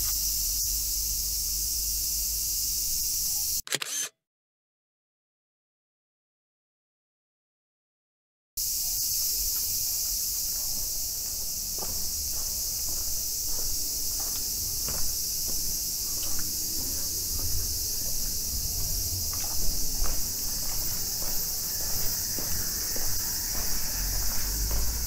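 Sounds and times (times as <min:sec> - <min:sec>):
insect chorus drone: 0:00.0 - 0:03.7, 0:08.6 - 0:25.0
footsteps on paved path: 0:08.6 - 0:25.0.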